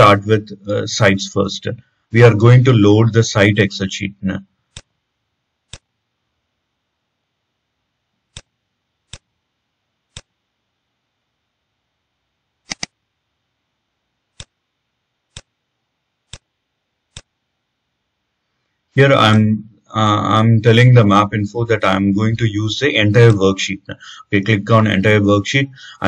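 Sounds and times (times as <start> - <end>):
computer mouse clicks: 5.7 - 5.9, 8.3 - 8.5, 9.1 - 9.3, 10.1 - 10.3, 12.7 - 13.0, 15.3 - 15.5, 16.3 - 16.5, 17.1 - 17.3.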